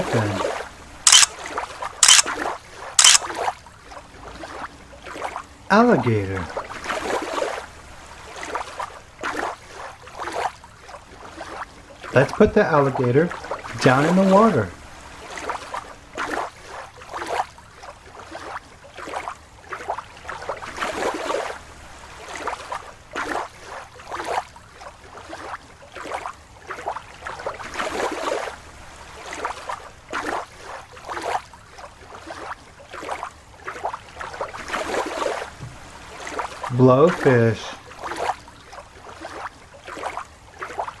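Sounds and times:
water splashing in a tub: 6.3s - 41.0s.

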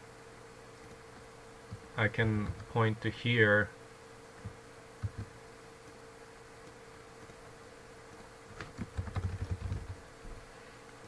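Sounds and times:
faint hum: 0.0s - 11.0s
keyboard typing: 2.4s - 2.8s, 4.4s - 6.0s, 8.1s - 10.0s.

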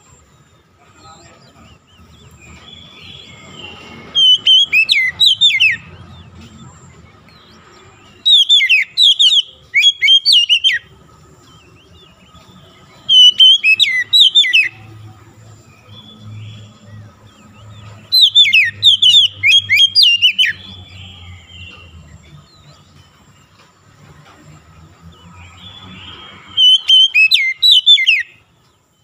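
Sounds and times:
bird singing whistled phrases: 2.4s - 6.0s, 8.1s - 10.9s, 13.0s - 15.0s, 18.0s - 21.9s, 25.6s - 28.4s.

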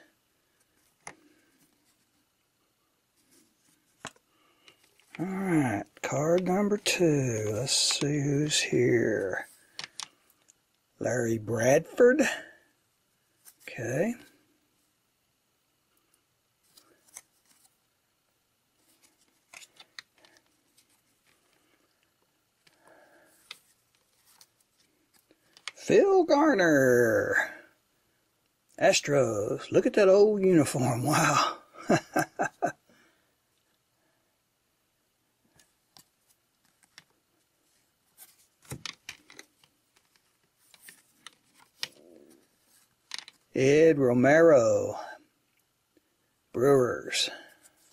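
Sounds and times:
cards rustling: 3.2s - 10.5s, 16.0s - 17.8s, 18.8s - 25.9s, 36.0s - 43.5s
cardboard cards rustling and tapping: 38.2s - 43.5s.

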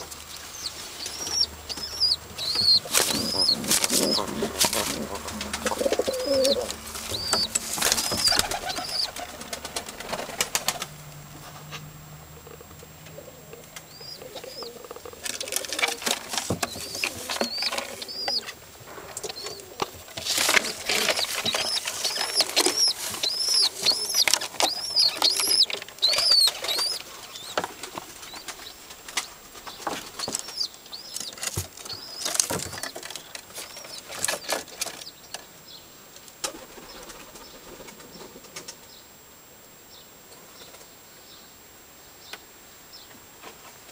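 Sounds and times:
rustling in nest: 0.0s - 11.8s, 12.5s - 35.1s
pigeons peeping: 0.0s - 35.8s, 36.4s - 39.0s
wings flapping: 0.1s - 11.2s, 13.7s - 35.0s.

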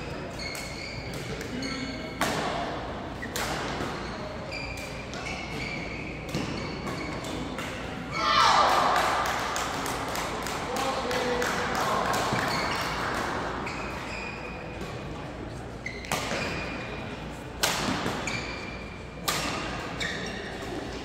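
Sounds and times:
shoes squeaking on court: 0.0s - 7.6s, 12.3s - 17.2s, 18.1s - 19.0s, 19.6s - 21.0s
rackets hitting shuttlecocks: 2.2s - 4.0s.

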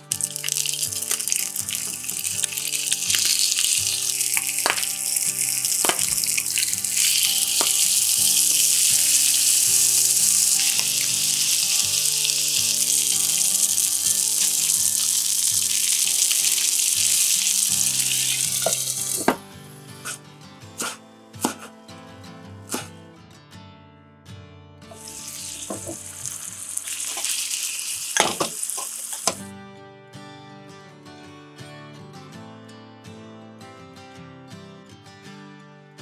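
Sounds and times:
fish sizzling in oil: 0.0s - 19.4s, 24.9s - 29.4s
clicks and taps in pan: 4.3s - 5.0s, 5.8s - 6.4s, 7.4s - 8.0s, 28.2s - 29.4s.

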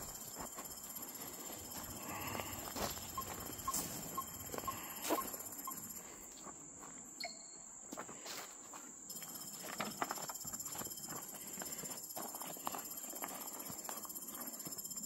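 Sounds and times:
footsteps on gravel and wood: 0.0s - 5.5s, 6.3s - 7.1s, 7.9s - 14.7s
high insect drone: 0.0s - 15.0s
short beeps: 3.0s - 5.9s, 7.2s - 7.7s.

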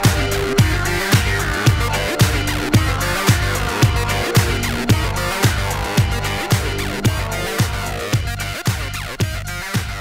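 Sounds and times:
deep kick drum: 0.1s - 8.4s
sustained synth tones: 0.3s - 8.6s.

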